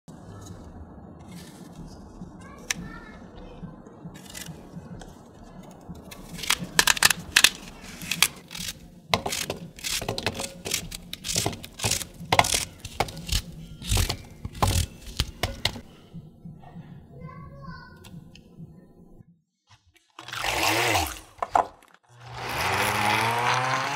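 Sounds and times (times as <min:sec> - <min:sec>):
knife cutting zucchini: 0:08.0 - 0:15.8.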